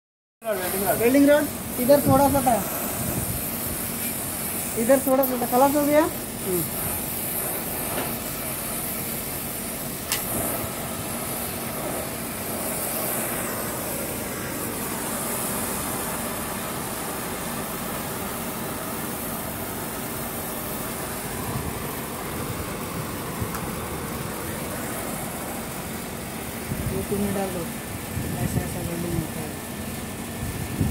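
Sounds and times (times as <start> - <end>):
gas torch hissing: 0.5 - 30.9
sharp click: 10.1 - 10.3.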